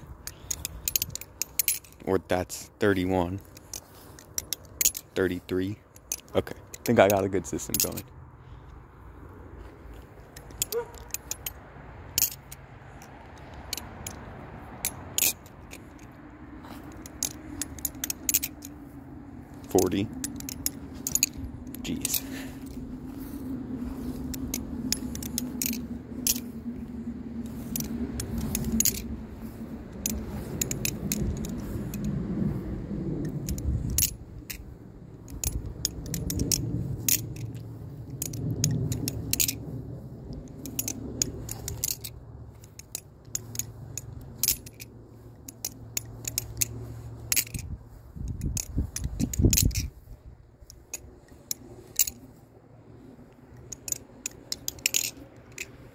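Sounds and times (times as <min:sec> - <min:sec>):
butterfly knife metallic clicks: 0:00.0 - 0:02.0, 0:10.3 - 0:18.8, 0:19.5 - 0:22.8, 0:27.4 - 0:32.2, 0:33.2 - 0:49.9.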